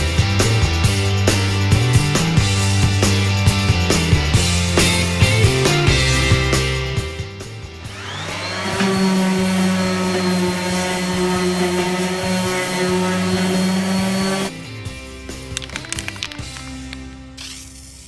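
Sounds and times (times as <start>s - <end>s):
small electric motor whining: 7.8s - 14.5s.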